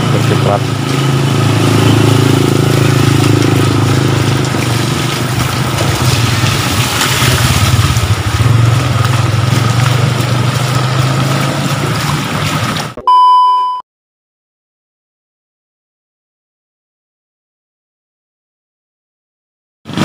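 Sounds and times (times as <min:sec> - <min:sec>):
flood water rushing: 0:00.0 - 0:13.0
motorcycle engine running: 0:00.0 - 0:13.0
test-tone beep: 0:13.0 - 0:13.8.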